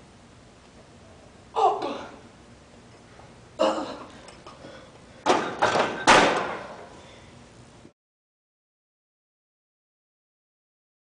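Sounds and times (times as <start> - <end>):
metal clanks and rattles: 5.2 - 6.7
barbell knock: 5.3 - 6.7.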